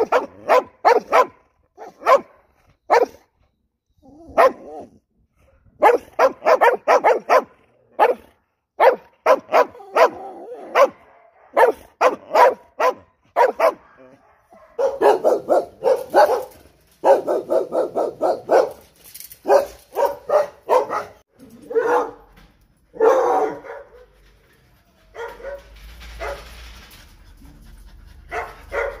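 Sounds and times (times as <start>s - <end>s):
dogs barking: 0.0s - 3.2s, 4.3s - 4.9s, 5.8s - 18.8s, 19.4s - 22.3s, 23.0s - 24.0s, 28.3s - 29.0s.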